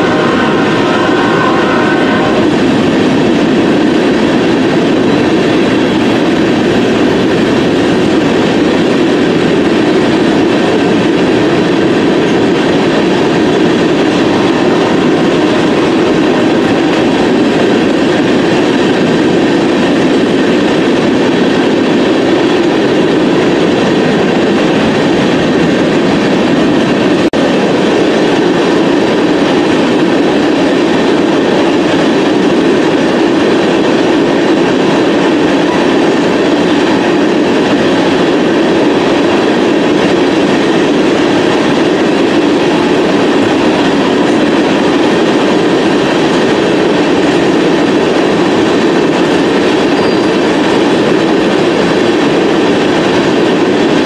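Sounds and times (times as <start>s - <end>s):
higher steady tones: 0.0s - 4.6s, 10.9s - 18.5s
train wheels rumbling on rails: 0.0s - 54.0s.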